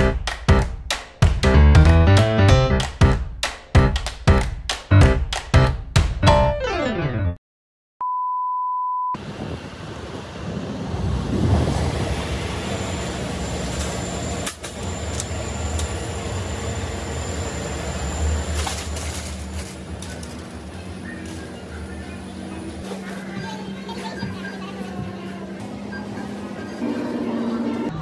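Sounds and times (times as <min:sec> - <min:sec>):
background music: 0:00.0 - 0:07.4
supermarket entrance hum: 0:09.2 - 0:28.0
shopping cart rattling: 0:18.5 - 0:24.7.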